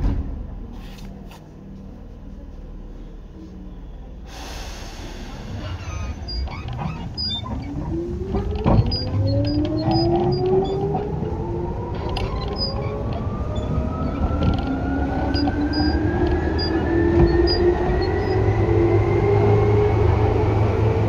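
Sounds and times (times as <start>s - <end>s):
air hiss: 4.3s - 6.1s
traction motor whine rising: 5.4s - 21.0s.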